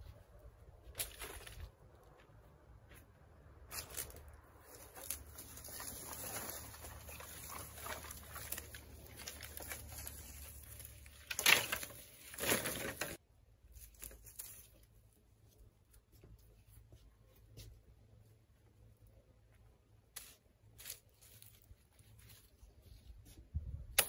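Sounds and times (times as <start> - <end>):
rustling and scraping: 0.0 - 23.7.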